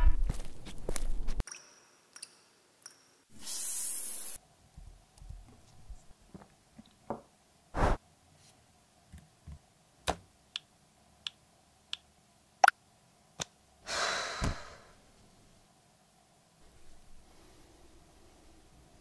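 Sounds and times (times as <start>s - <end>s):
rustling swish: 7.8s - 8.0s.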